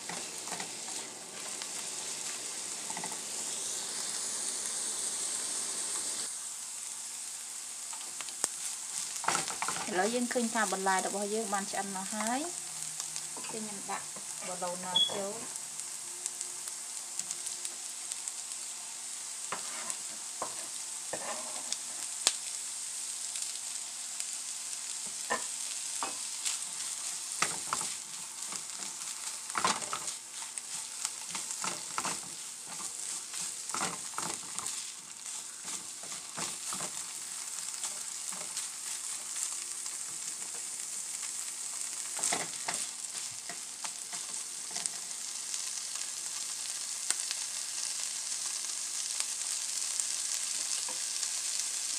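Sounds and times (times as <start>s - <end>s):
vegetables sizzling in a pan: 0.0s - 51.9s
spatula scraping a pan: 19.5s - 22.0s, 25.2s - 39.5s.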